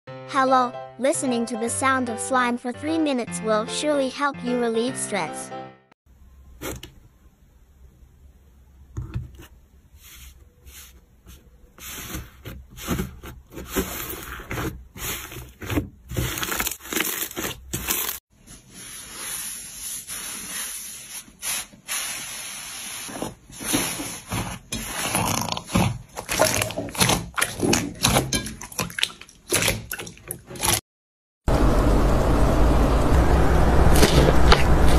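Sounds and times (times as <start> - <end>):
slime squishing by hand: 23.1 - 30.8.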